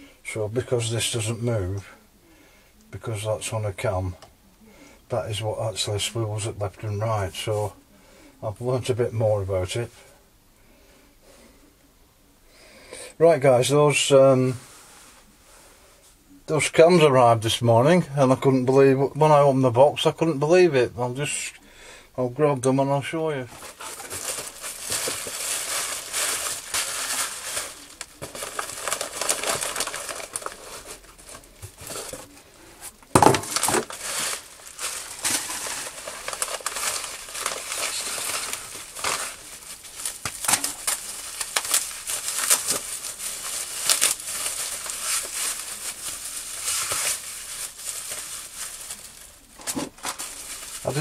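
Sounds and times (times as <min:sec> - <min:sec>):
packaging crinkling: 0:23.5 - 0:51.0.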